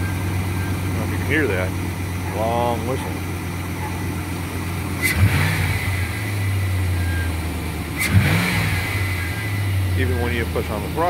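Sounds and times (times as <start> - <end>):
engine revving: 0.0 - 11.0
truck engine running: 0.0 - 11.0.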